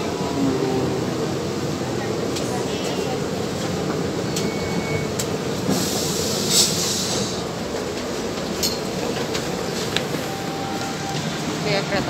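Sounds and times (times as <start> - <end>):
train running noise: 0.0 - 12.0
air hiss: 5.7 - 7.4.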